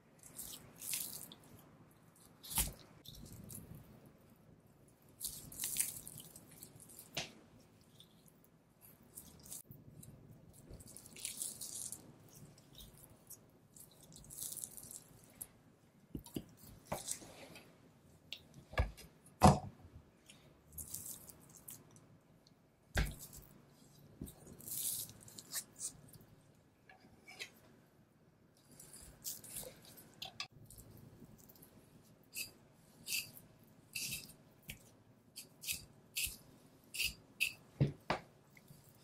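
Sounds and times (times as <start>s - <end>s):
wet meat sounds: 0.2s - 3.9s, 5.0s - 15.5s.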